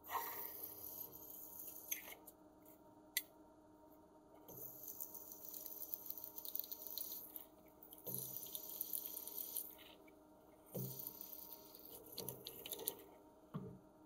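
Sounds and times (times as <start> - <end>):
milling spindle hum: 0.0 - 2.8, 3.8 - 14.0.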